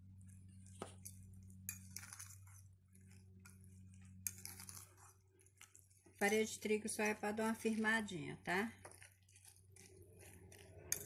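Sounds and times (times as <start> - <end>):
steady low hum: 0.0 - 11.0
fork scraping and clinking glass bowl: 0.9 - 7.2, 8.8 - 11.0.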